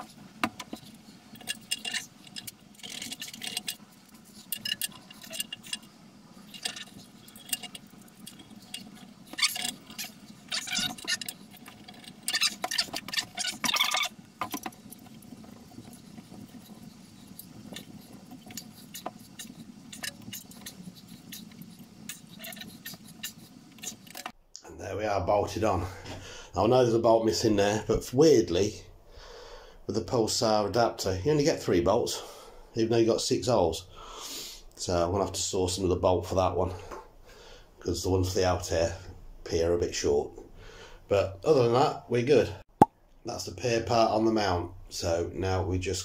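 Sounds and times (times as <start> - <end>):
bolts clinking and scraping on metal: 0.0 - 24.4.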